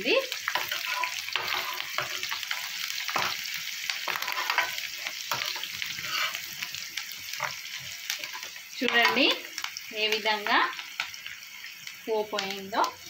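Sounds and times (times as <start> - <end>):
food sizzling in hot oil: 0.0 - 13.0
metal ladle scraping pan: 0.5 - 3.4, 4.0 - 6.6.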